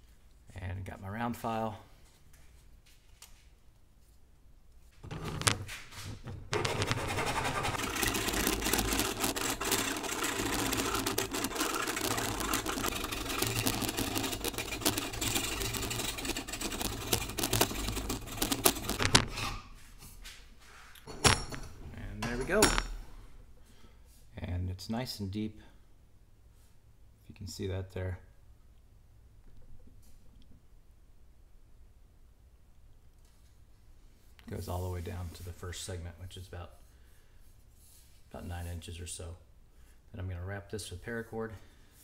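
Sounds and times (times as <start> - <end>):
file rasping inside bamboo: 6.6 - 19.6.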